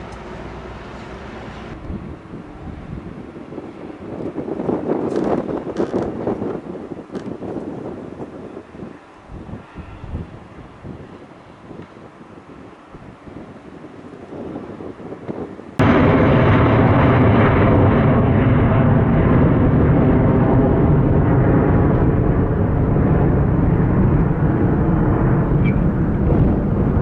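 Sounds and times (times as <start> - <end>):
jet engines rumbling: 0.0 - 27.0
wind: 0.0 - 27.0
faint distant aircraft: 15.7 - 27.0.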